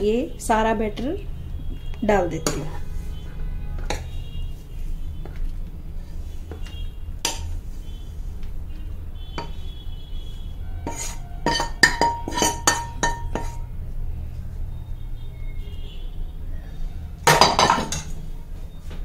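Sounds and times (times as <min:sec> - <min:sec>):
steel spoon knocking on metal pan: 0:02.4 - 0:02.8, 0:07.2 - 0:07.5, 0:09.4 - 0:09.6, 0:10.8 - 0:13.7, 0:17.3 - 0:18.1.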